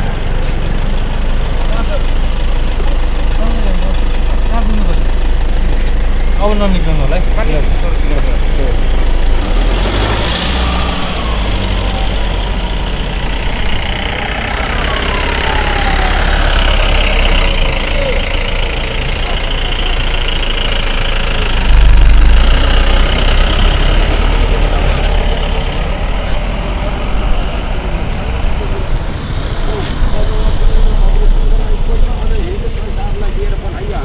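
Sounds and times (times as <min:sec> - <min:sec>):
low rumble: 0:00.0 - 0:29.2
street traffic noise: 0:00.0 - 0:34.0
vehicle engines idling: 0:00.0 - 0:34.0
pickup truck pulling away: 0:08.2 - 0:33.7.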